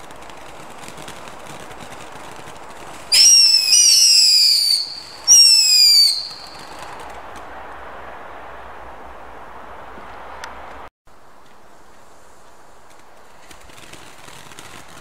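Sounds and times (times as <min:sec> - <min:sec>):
firework sparks hissing: 0:00.0 - 0:07.6, 0:11.9 - 0:15.0
shrill firework whistles: 0:03.0 - 0:07.2.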